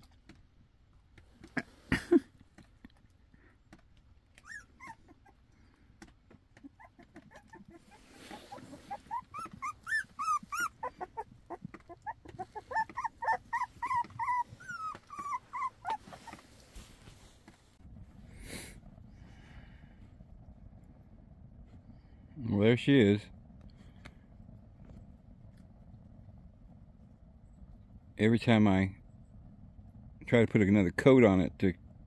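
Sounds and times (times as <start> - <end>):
puppies whimpering: 4.3 - 5.6, 6.6 - 17.0.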